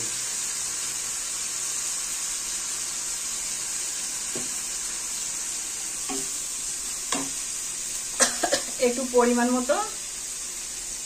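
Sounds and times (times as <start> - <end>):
masala sizzling in a pan: 0.0 - 11.0
spatula knocking on pan: 4.3 - 4.6, 6.1 - 6.3, 7.1 - 7.4.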